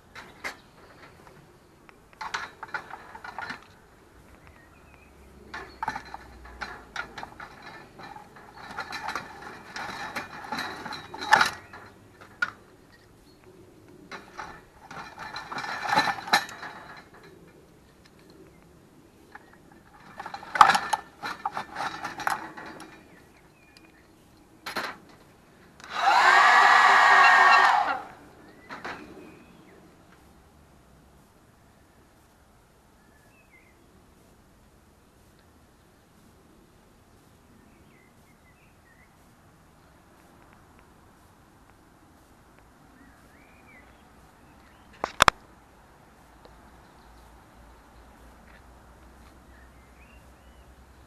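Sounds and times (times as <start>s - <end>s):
mechanical clicking and scraping: 2.1s - 13.0s, 14.0s - 18.6s, 19.3s - 24.0s, 25.8s - 28.2s.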